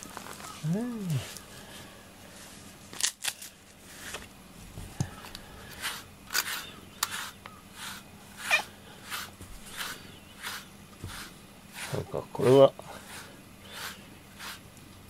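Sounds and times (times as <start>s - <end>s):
brush scratching through fur: 5.6s - 14.7s.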